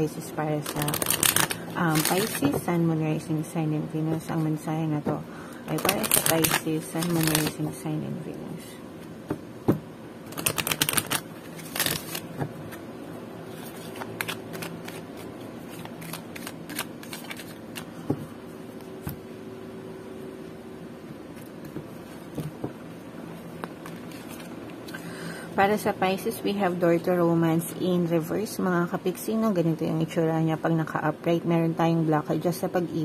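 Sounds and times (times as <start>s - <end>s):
faint hum: 0.0s - 33.0s
cards being shuffled: 0.6s - 2.6s, 5.7s - 7.6s, 10.3s - 12.8s, 13.5s - 18.1s, 23.6s - 25.0s.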